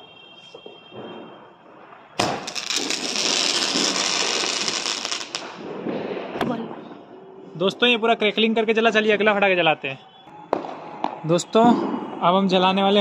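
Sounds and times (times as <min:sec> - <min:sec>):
firecracker sparks crackling: 0:01.2 - 0:06.4
sharp crack: 0:02.0 - 0:06.9.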